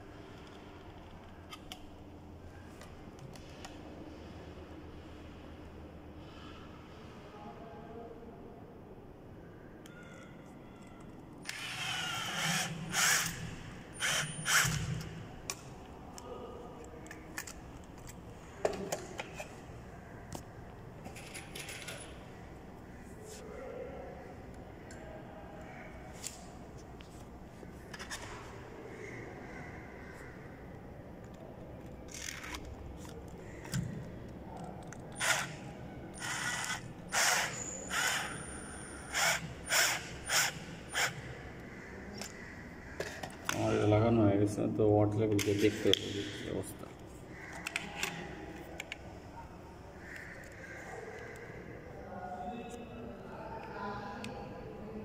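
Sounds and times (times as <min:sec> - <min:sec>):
cordless drill driving screws: 0:11.5 - 0:15.0, 0:36.2 - 0:41.2.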